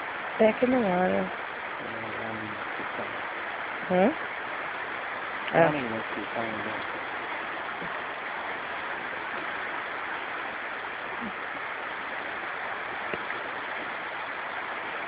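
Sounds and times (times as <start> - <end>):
small waves washing onto shore: 0.0 - 15.0.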